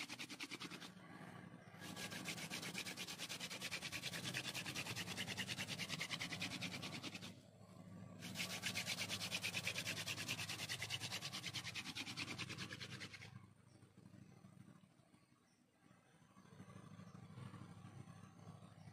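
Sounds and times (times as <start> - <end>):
fire drill spindle grinding wood: 1.8 - 7.3.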